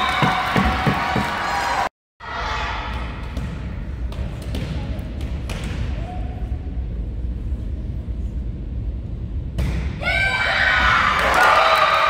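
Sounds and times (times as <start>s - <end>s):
spectators cheering and shouting: 0.0s - 2.5s
gymnasium rumble: 0.0s - 12.0s.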